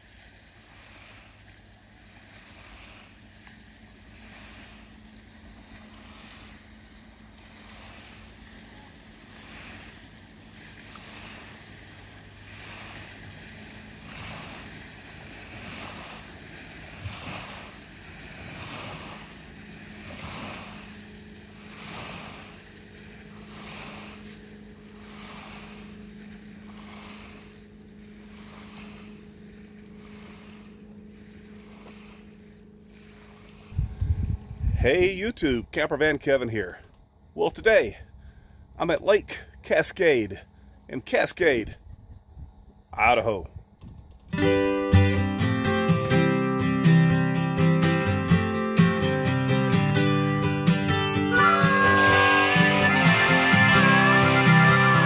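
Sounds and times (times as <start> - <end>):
waves washing onto rocky shore: 0.0 - 30.7
distant motorboat engine hum: 0.0 - 55.0.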